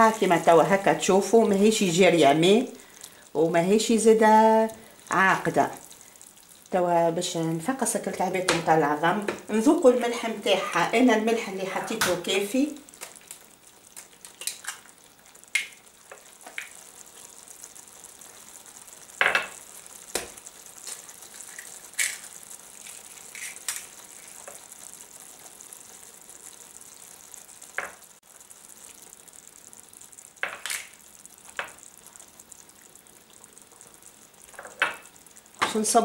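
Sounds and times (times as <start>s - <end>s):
sauce bubbling in a pan: 0.0s - 36.0s
eggs cracking: 11.8s - 35.8s.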